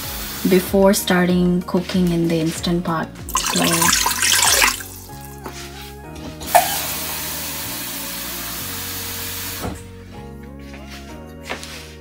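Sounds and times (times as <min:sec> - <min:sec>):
soft background music: 0:00.0 - 0:12.0
water pouring into metal pot: 0:03.3 - 0:05.4.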